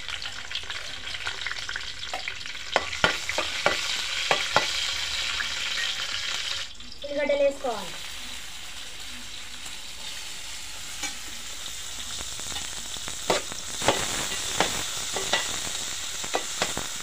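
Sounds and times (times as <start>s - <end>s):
onions sizzling in hot oil: 0.0s - 17.0s
metal ladle scraping a pan: 9.9s - 11.4s.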